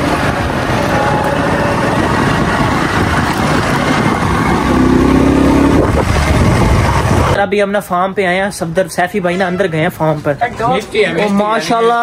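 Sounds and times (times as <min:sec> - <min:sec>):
motorcycle engine running: 0:00.0 - 0:07.4.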